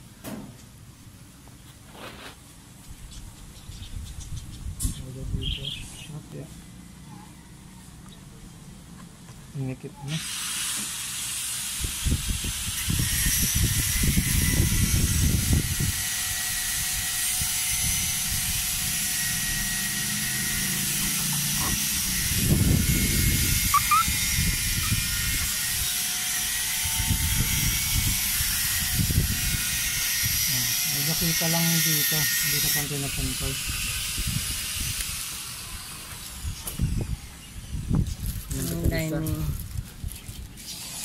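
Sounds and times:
wind rumbling on microphone: 2.9 - 6.0, 11.8 - 30.7, 32.6 - 40.6.

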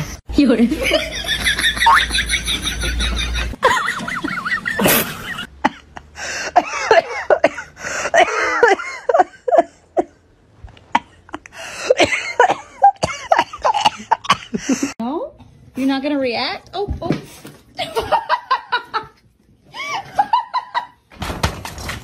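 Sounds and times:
person coughing and laughing: 4.6 - 9.7, 10.9 - 15.0.

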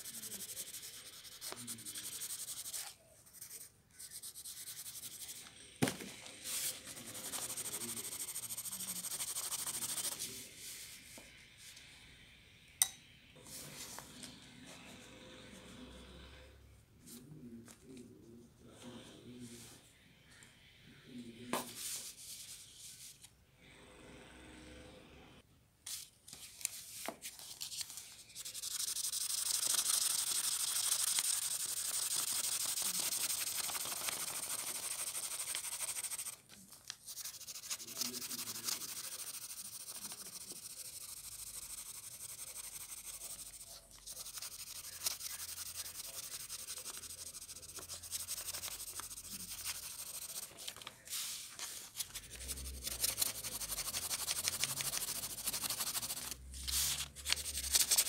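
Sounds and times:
pencil shading on paper: 0.0 - 5.5, 6.4 - 10.4, 28.4 - 36.4, 37.1 - 51.4, 52.2 - 58.0.

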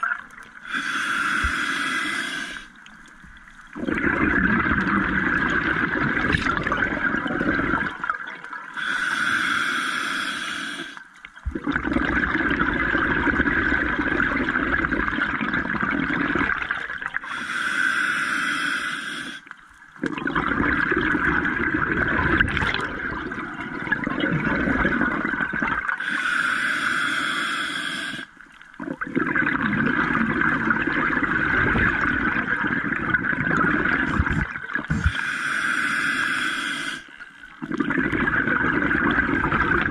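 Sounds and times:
regulator hissing inhale: 0.6 - 2.8, 8.8 - 11.1, 17.2 - 19.5, 26.0 - 28.4, 34.0 - 37.4
bubbling exhale: 3.8 - 8.1, 20.0 - 39.9.

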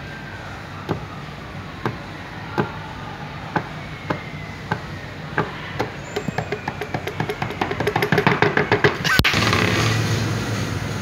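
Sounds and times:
knocks on a tabletop: 5.4 - 9.0.

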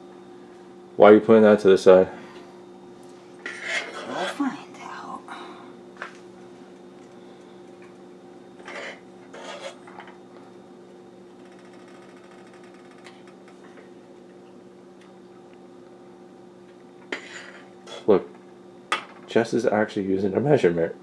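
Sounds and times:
appliance electrical hum: 0.0 - 21.0
metal spoon scraping steel pot: 3.5 - 4.4, 8.7 - 9.8.

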